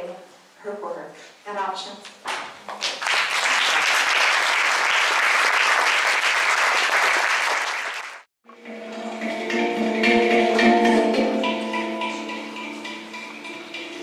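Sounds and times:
audience applauding: 2.8 - 8.3
hang drum ringing: 8.6 - 14.0.

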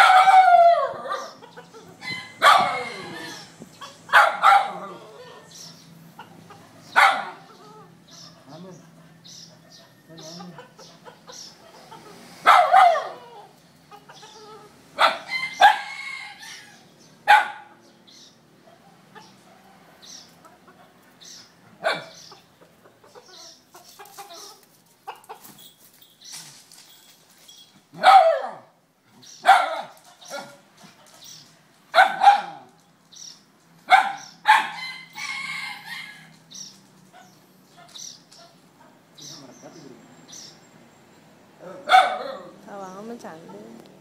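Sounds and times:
dog barking: 0.0 - 1.4, 2.4 - 3.0, 4.1 - 5.1, 6.9 - 7.5, 12.4 - 13.4, 15.0 - 15.9, 17.3 - 17.7, 21.8 - 22.2, 28.0 - 28.8, 29.4 - 30.6, 32.0 - 32.7, 33.9 - 34.8, 41.7 - 42.6
rooster squawking: 0.0 - 5.6.

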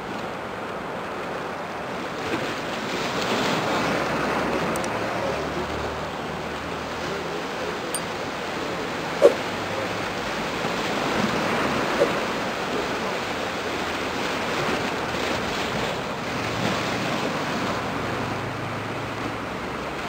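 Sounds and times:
small waves washing on shore: 0.0 - 20.0
wind on microphone: 8.0 - 18.2.

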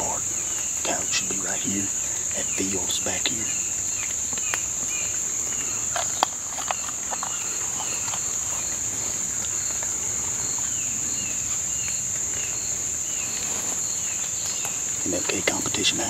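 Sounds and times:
insect chorus drone: 0.0 - 16.0
sharp clicks: 4.0 - 8.8.

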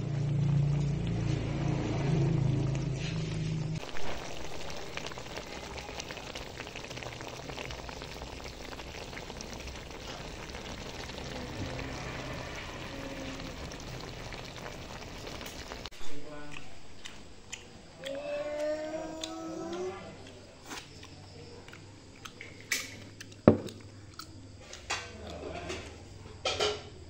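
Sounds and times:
food sizzling in a wok: 0.0 - 16.0.

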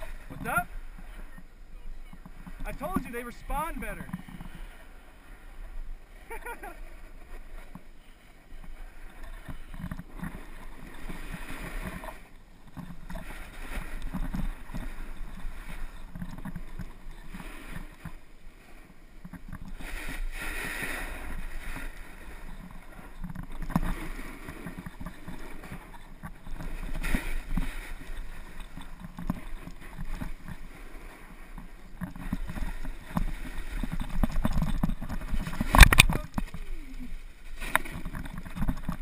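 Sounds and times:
wind rumble on microphone: 0.0 - 39.0
snowboard scraping on snow: 2.3 - 8.0, 8.6 - 23.2.

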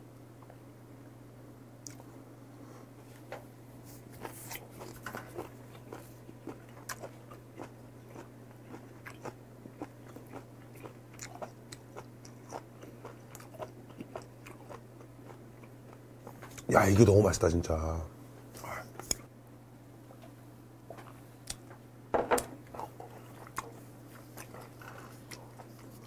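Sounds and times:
steady low hum: 0.0 - 26.0
person chewing wetly: 4.1 - 16.7, 22.6 - 26.0.

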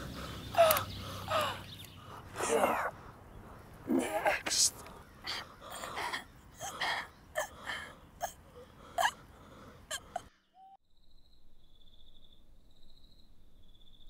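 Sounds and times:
woman gasping and whimpering: 0.0 - 1.7
crickets chirping: 0.0 - 8.7, 9.9 - 14.0.

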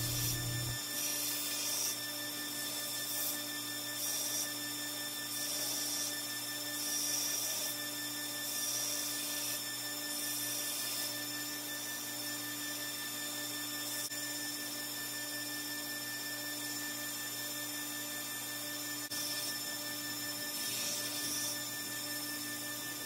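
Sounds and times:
belt grinder motor hum: 0.0 - 0.8
high grinding hiss: 0.0 - 0.8
low rumble: 0.0 - 0.8.

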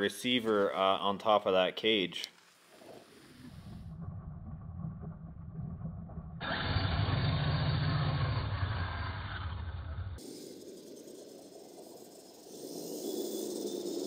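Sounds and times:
simulated truck engine revving: 6.4 - 10.2.

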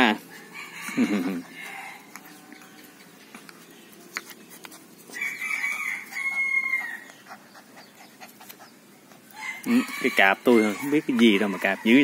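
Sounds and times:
rooster crowing: 0.3 - 2.2, 5.1 - 7.1, 9.3 - 12.0.

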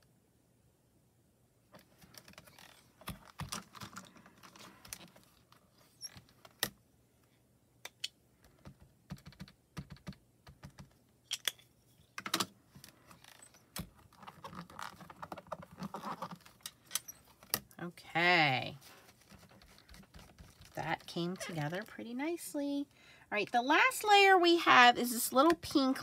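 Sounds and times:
hands handling stamps: 18.8 - 21.9.

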